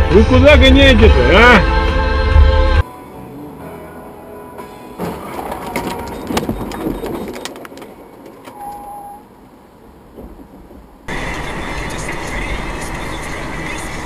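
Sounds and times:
road noise: 0.0 - 14.0
vehicle crash: 4.6 - 9.1
brief tone: 5.8 - 7.6, 8.5 - 9.3.

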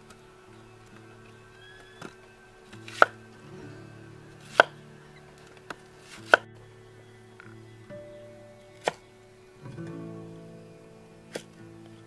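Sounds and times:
knife chopping on wooden board: 2.8 - 3.2, 4.4 - 4.7, 6.0 - 6.4.

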